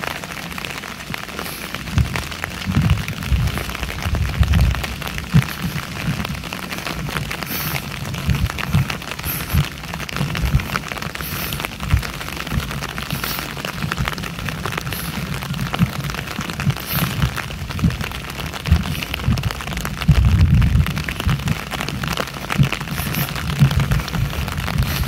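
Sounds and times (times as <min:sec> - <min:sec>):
rain drumming on an umbrella: 0:00.0 - 0:25.0
rain on wet pavement: 0:00.0 - 0:25.0.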